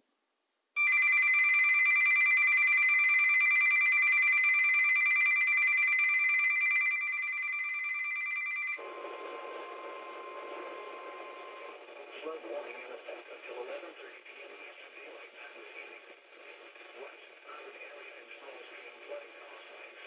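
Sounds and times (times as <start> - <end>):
radio static: 8.8 - 20.0
steady radio warning tone: 8.8 - 20.0.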